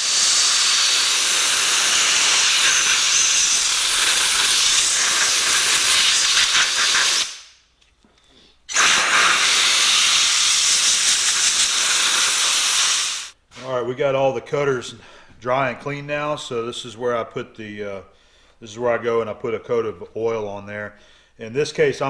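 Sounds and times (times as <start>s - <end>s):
compressed air blasting: 0.0s - 7.6s, 8.7s - 13.4s.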